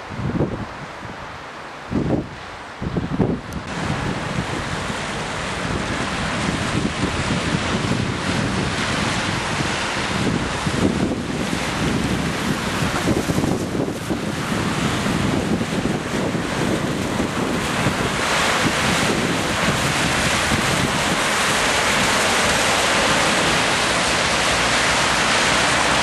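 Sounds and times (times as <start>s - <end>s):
car traffic on wet streets: 0.0s - 26.0s
rain hiss: 0.0s - 26.0s
wind buffeting microphone: 0.0s - 26.0s.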